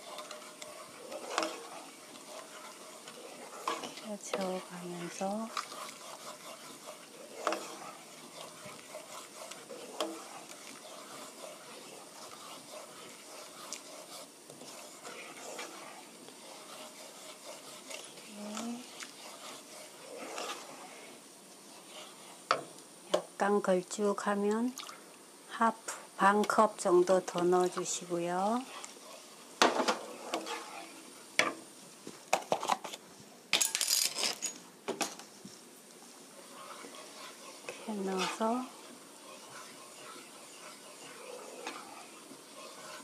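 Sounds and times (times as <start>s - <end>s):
spatula scraping pan bottom: 0.0s - 21.2s, 27.8s - 31.5s, 36.4s - 43.0s.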